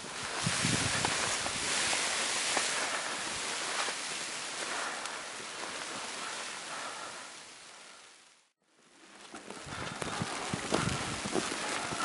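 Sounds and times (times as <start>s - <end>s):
blizzard wind blowing snow: 0.0s - 12.0s.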